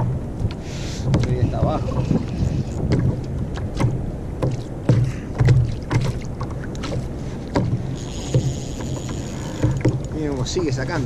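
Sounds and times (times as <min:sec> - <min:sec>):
water slapping kayak hull: 0:00.0 - 0:11.0
hollow knocks and sharp clicks: 0:01.1 - 0:01.4, 0:02.0 - 0:10.2.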